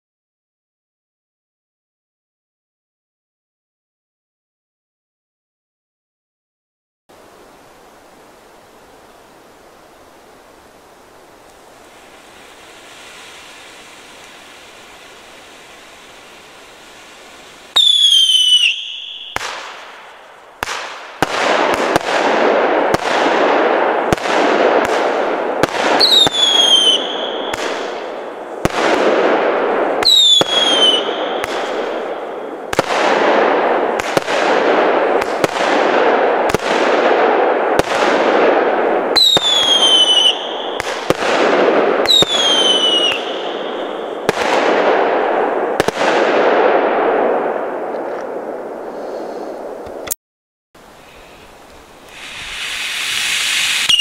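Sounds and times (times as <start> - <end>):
firework bursts in the air: 11.8 - 49.8, 52.1 - 54.0
firework cake shots: 52.1 - 54.0.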